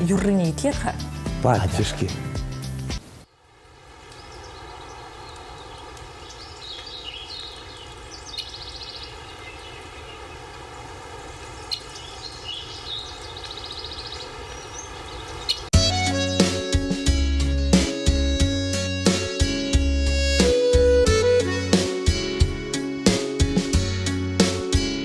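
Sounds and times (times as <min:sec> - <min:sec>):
steady background hiss: 0:03.0 - 0:15.7
small birds chirping: 0:03.2 - 0:15.8.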